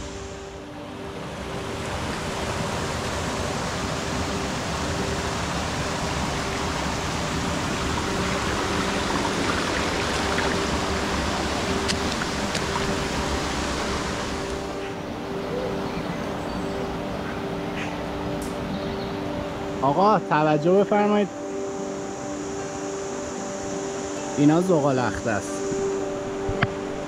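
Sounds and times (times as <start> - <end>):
stream rushing over pebbles: 0.9 - 14.8.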